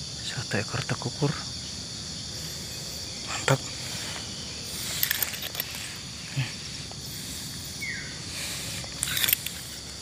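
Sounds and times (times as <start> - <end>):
high-pitched outdoor hiss: 0.0 - 10.0.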